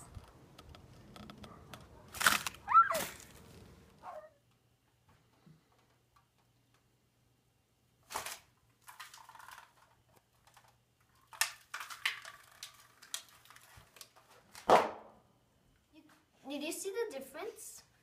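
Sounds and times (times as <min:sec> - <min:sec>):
disposable cups crunching: 0:02.1 - 0:03.6, 0:08.1 - 0:14.2.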